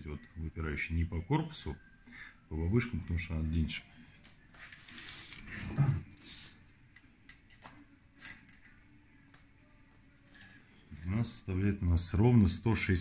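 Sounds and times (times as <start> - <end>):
tape measure rasping rustle: 4.6 - 6.6.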